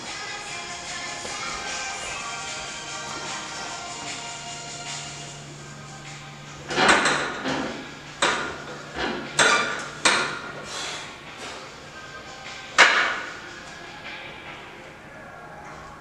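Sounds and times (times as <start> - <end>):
sharp metallic clanks: 6.6 - 10.6.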